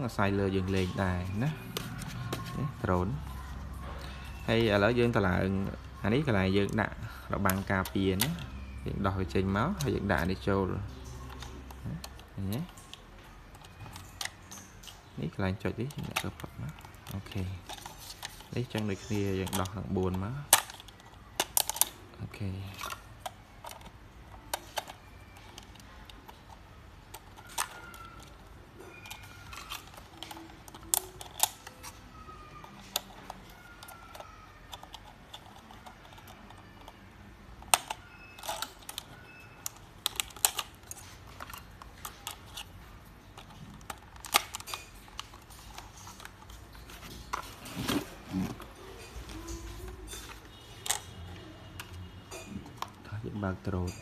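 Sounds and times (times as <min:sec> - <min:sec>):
light plastic rattling: 0:00.1 - 0:54.0
sharp plastic clicks: 0:22.7 - 0:47.6.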